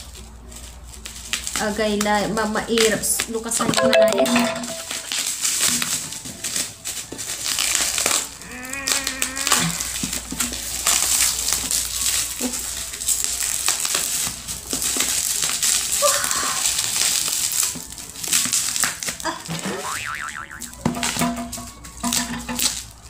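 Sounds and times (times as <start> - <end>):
bubble wrap crinkling and crackling: 0.0 - 3.6, 5.0 - 19.5, 21.7 - 23.0.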